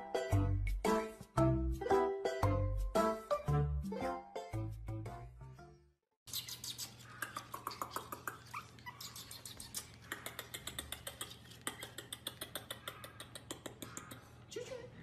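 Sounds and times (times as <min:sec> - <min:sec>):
puppy whimpering: 0:06.8 - 0:10.0.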